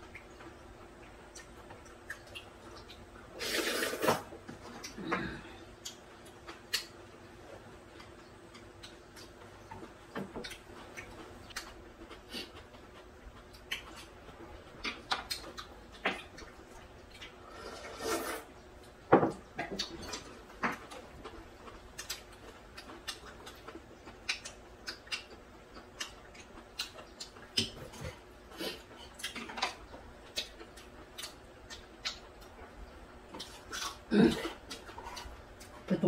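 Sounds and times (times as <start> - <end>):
chewing: 0.1 - 18.0, 19.6 - 35.9
slurping noodles: 3.4 - 4.3, 17.5 - 18.5.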